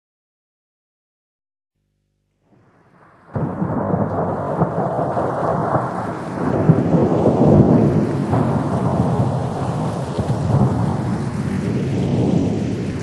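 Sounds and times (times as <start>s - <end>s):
wind buffeting microphone: 3.4s - 13.0s.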